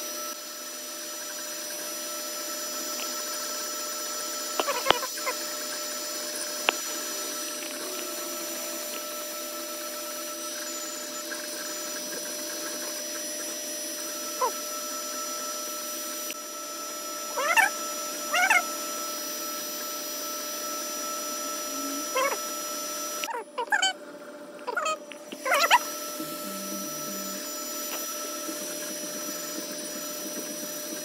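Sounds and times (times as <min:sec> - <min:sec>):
printer fans and motors humming: 0:00.0 - 0:31.0.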